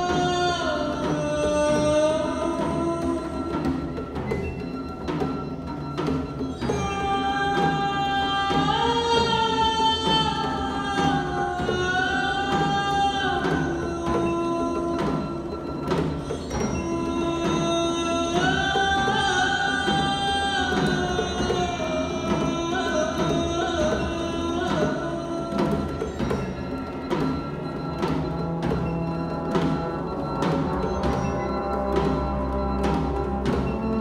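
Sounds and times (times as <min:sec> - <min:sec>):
percussion strokes: 0:00.0 - 0:34.0
wind band playing: 0:26.8 - 0:34.0.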